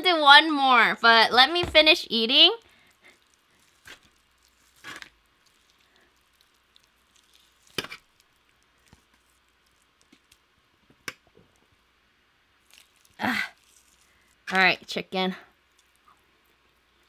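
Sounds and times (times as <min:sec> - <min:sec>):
roast chicken tearing: 0:02.6 - 0:10.5, 0:12.6 - 0:14.5, 0:15.7 - 0:16.1.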